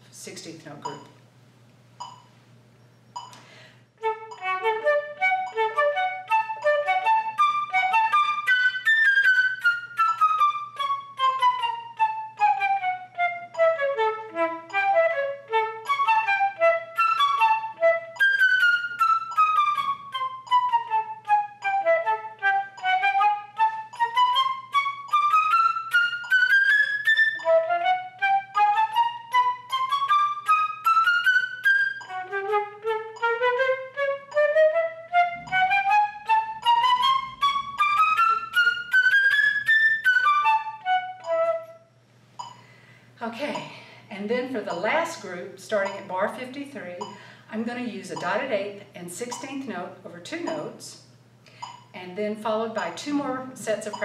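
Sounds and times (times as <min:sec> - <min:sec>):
solo flute playing scales: 0:04.0 - 0:42.0.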